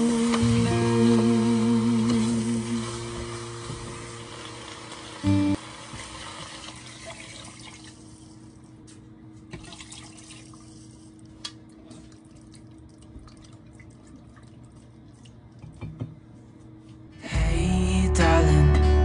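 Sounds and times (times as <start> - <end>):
water pouring and splashing: 2.1 - 8.1, 9.5 - 10.9, 11.7 - 15.6
small drips and clicks: 10.5 - 15.8.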